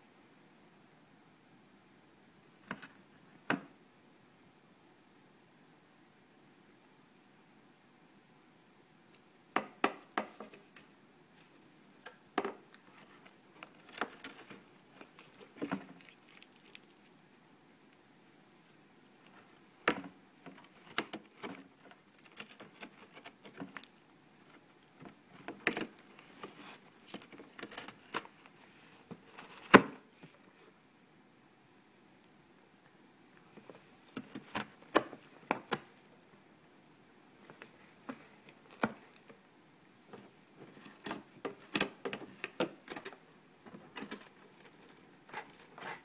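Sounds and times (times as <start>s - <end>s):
cat chewing cardboard: 20.5s - 23.9s.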